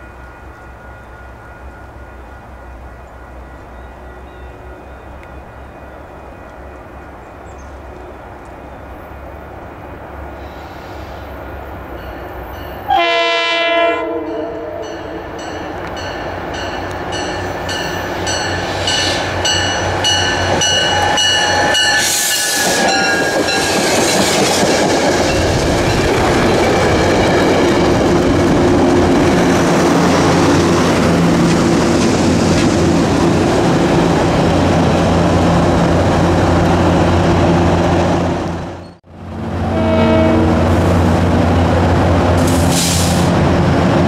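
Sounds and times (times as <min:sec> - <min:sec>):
diesel locomotive engine drone: 0:00.0 - 0:44.0
high ringing tones: 0:14.2 - 0:23.7
train wheels clicking over rail joints: 0:15.8 - 0:33.2, 0:42.4 - 0:43.4.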